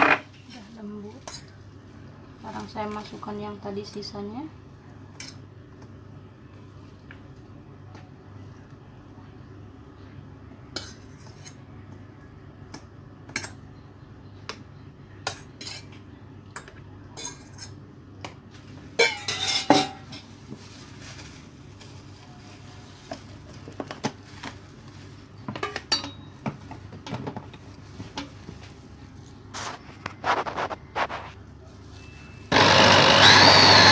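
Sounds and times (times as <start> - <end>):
metal bowl and utensil clinking: 19.0 - 20.3, 25.5 - 26.4.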